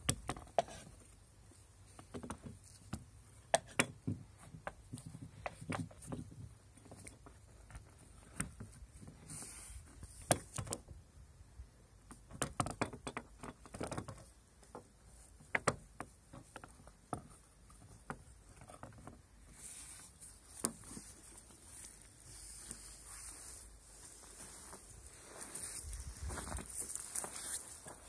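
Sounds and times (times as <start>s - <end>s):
hands working strap at car window: 12.1s - 23.6s.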